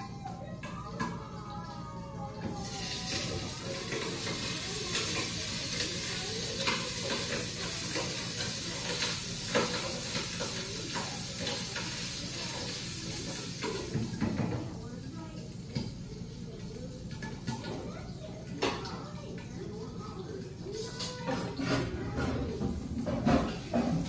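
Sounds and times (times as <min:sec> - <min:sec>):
food sizzling in a frying pan: 0:00.0 - 0:24.0
cooking utensil scraping: 0:20.7 - 0:24.0.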